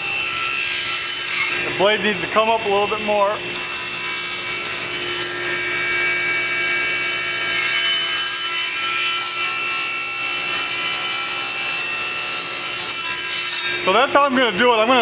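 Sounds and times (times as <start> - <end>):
dust collector running: 0.0 - 5.2
table saw whine: 0.0 - 15.0.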